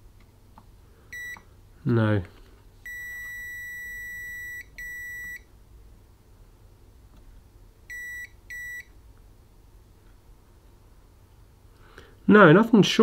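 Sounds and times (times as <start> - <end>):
multimeter beeping: 1.1 - 1.4, 2.8 - 5.5, 7.9 - 8.9.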